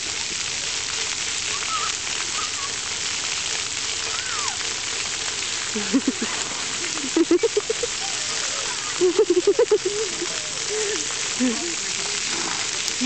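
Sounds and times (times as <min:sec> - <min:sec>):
water jets spraying on pavement: 0:00.0 - 0:13.0.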